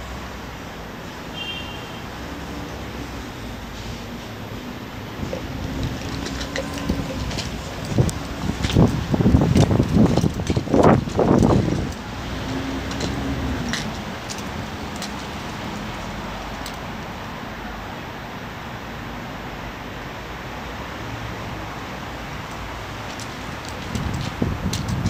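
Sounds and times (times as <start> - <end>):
city traffic noise: 0.0 - 25.0
passing vehicle engine: 2.0 - 17.8.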